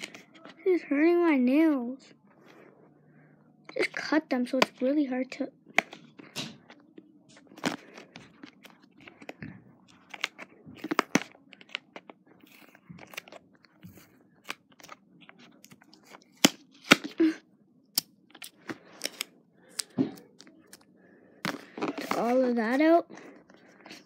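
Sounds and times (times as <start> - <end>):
packaging crackling and snapping: 7.4 - 13.8.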